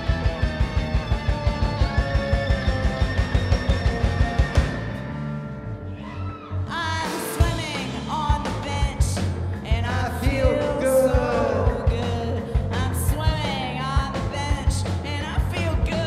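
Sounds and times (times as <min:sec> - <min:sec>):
live rock band playing: 0:07.0 - 0:16.0
person singing: 0:10.1 - 0:13.1.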